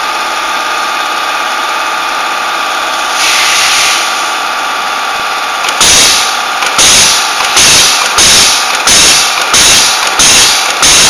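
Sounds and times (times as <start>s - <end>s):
machine humming: 0.0s - 11.0s
air hissing: 3.0s - 4.4s, 5.6s - 11.0s.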